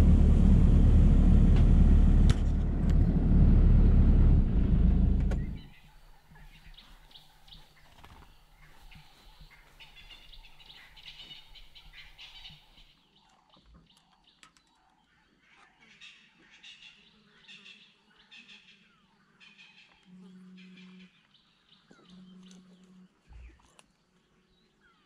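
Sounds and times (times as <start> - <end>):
low steady hum: 0.0 - 7.4
birds chirping and trilling: 5.3 - 25.0.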